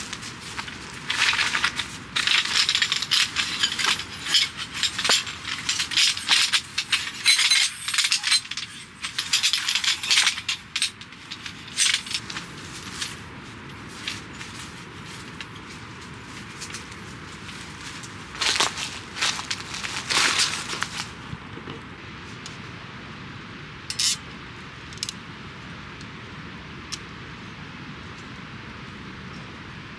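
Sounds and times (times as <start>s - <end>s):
metal poles clinking and rattling: 0.0s - 21.2s, 23.9s - 24.2s
nylon bag rustling: 11.4s - 21.2s.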